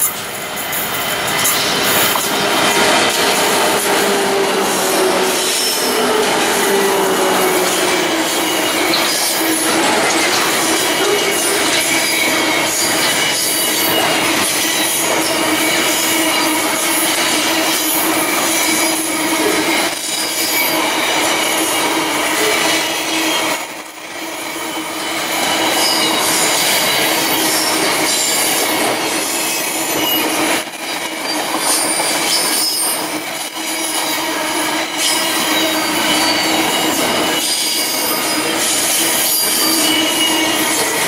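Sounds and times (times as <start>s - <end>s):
freight train rolling past: 0.0s - 41.0s
wheels squealing on rails: 0.0s - 41.0s.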